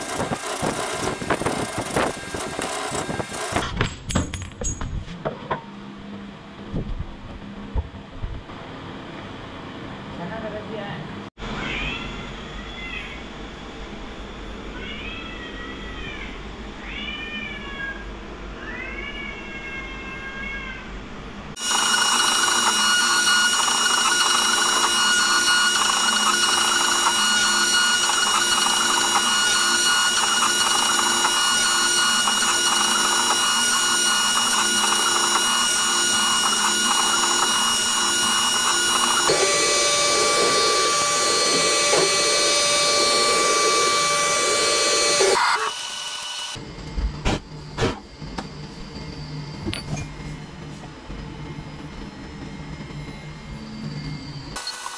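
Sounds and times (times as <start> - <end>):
milling machine cutting metal: 0.0 - 3.7, 21.6 - 46.6, 54.6 - 54.9.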